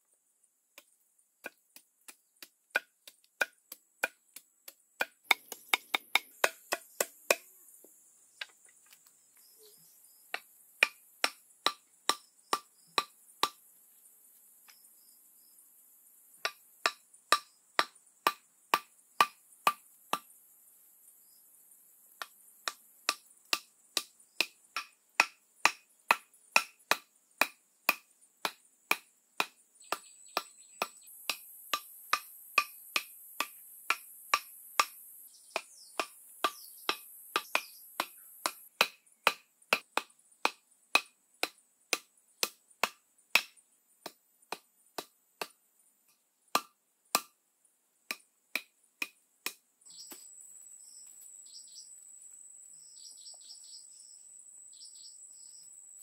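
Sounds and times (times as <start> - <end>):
wooden club knocking stakes: 0.8 - 7.5, 10.3 - 13.6, 16.4 - 20.3, 22.2 - 45.6, 46.5 - 47.3, 48.1 - 50.2.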